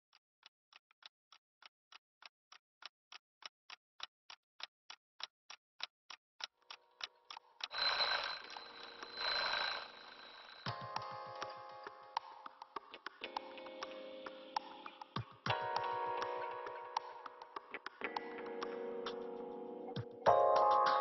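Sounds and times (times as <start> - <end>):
alarm clock ticking: 6.7 - 12.7
alarm ringing: 7.7 - 11.5
music beat: 10.7 - 21.0.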